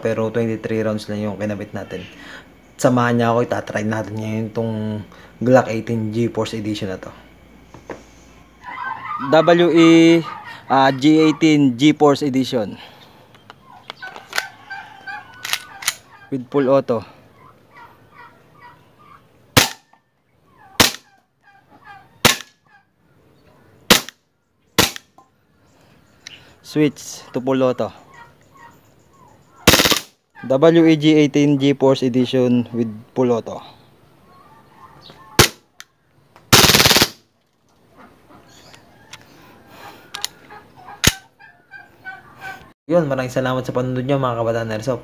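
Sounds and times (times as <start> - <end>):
farm fowl calling: 0.0 - 36.3, 37.7 - 42.8
airsoft pistol shots: 19.6 - 19.9, 20.8 - 21.1, 22.2 - 22.6, 23.9 - 24.2, 24.8 - 25.1, 29.7 - 30.2, 35.4 - 35.6, 36.6 - 37.2.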